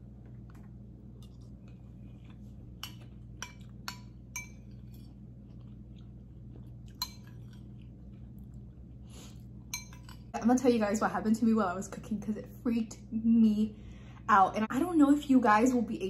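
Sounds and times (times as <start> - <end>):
quiet chewing: 0.0 - 10.4
low hum: 0.0 - 16.0.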